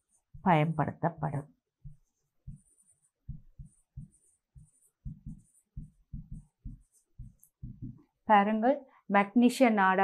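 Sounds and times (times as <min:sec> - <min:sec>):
pen knocking on surface: 0:01.8 - 0:08.0
pen scratching on paper: 0:01.8 - 0:08.0.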